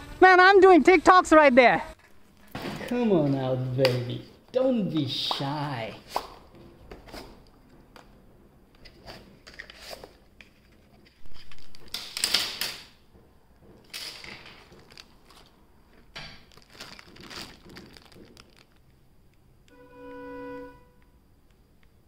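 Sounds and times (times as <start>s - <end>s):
crinkling rustles: 13.9s - 19.0s.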